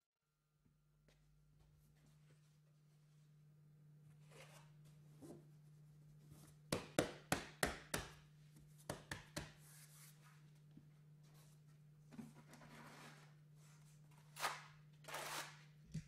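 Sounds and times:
hands smacking panel into mortar: 6.7 - 8.2, 8.8 - 9.6.

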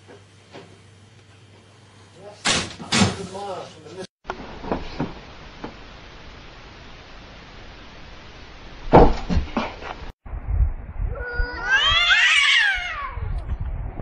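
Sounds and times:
loud thumps: 8.8 - 10.1
cat yowling: 11.1 - 13.4.

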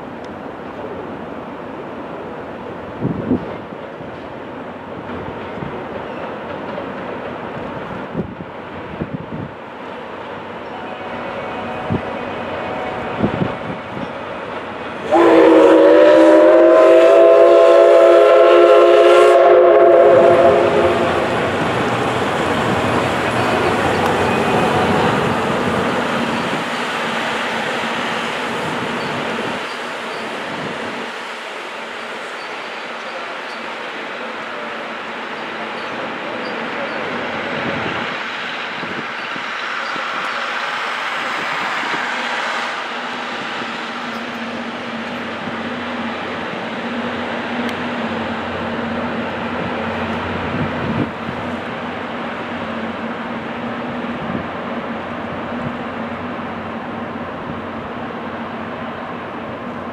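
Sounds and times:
train rumbling along track: 0.0 - 59.9
steam whistle blast: 15.0 - 21.5.

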